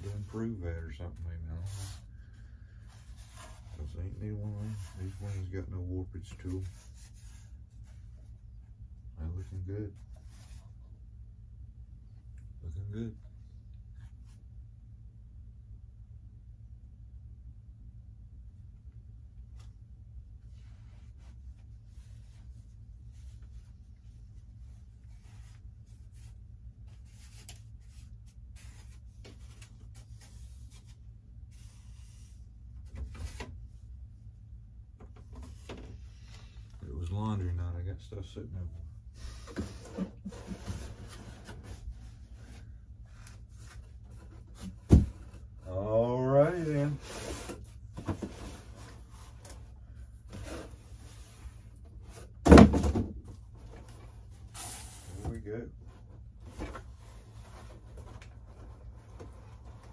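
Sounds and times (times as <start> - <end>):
cardboard rustling and scraping: 0.0 - 8.4, 39.2 - 45.6, 46.4 - 59.9
steady low hum: 0.0 - 59.9
cardboard box thump: 52.4 - 53.2.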